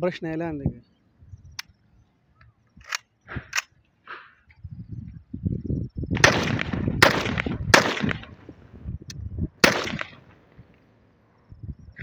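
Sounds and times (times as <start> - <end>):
rifle shots with echo: 6.2 - 8.5, 9.6 - 10.6.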